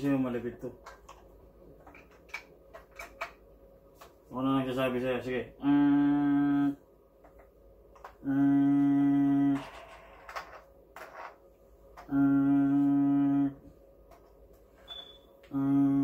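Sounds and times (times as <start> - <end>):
man humming low note: 5.6 - 6.8, 8.2 - 9.7, 12.0 - 13.7, 15.4 - 16.0.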